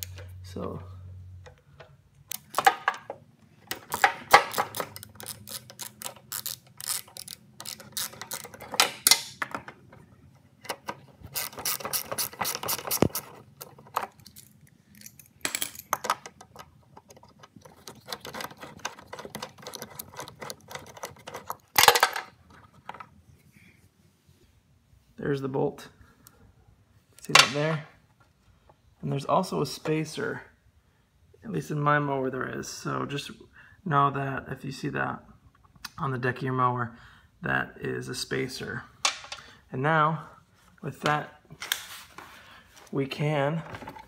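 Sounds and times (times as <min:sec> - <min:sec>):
socket ratchet clicking: 0:03.7 - 0:09.4, 0:10.7 - 0:15.3.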